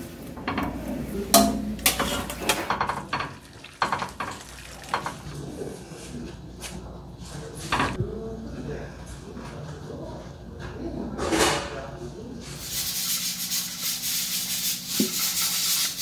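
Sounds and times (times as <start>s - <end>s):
metal ladle clinking on pot: 0.4s - 5.2s.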